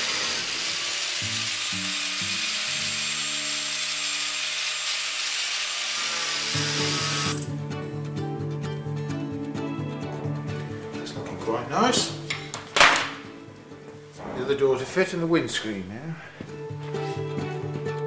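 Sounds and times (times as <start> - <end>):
angle grinder cutting metal: 0.0 - 7.5.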